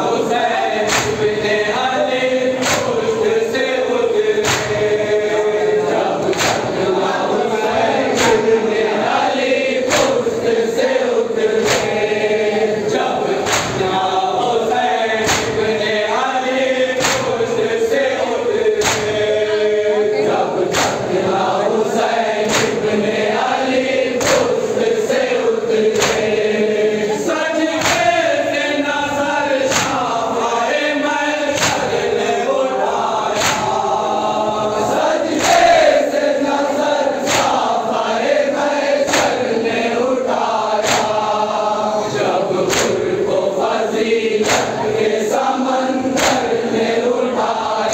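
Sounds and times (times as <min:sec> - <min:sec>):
men chanting in unison: 0:00.0 - 0:47.9
chest-beating slaps: 0:00.5 - 0:11.0, 0:11.6 - 0:12.2, 0:13.0 - 0:19.4, 0:20.7 - 0:21.2, 0:22.0 - 0:26.5, 0:27.7 - 0:28.7, 0:29.6 - 0:30.3, 0:31.4 - 0:32.3, 0:32.9 - 0:36.4, 0:37.1 - 0:38.3, 0:38.9 - 0:39.8, 0:40.8 - 0:41.6, 0:42.6 - 0:43.3, 0:44.4 - 0:45.2, 0:46.0 - 0:47.1.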